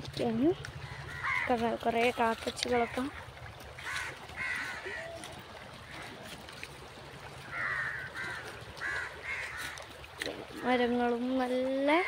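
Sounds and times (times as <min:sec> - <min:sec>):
crows cawing: 0:00.8 - 0:01.6, 0:02.7 - 0:06.3, 0:07.4 - 0:10.0.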